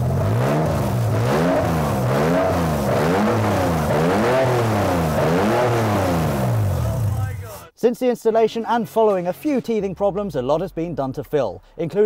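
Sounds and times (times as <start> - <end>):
car engine revving: 0.0 - 7.6.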